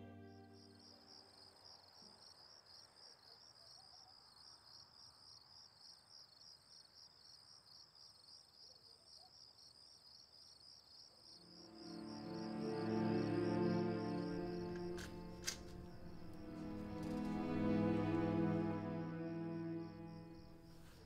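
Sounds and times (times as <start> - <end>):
music: 0.0 - 1.3, 11.5 - 21.0
crickets chirping: 0.0 - 21.0.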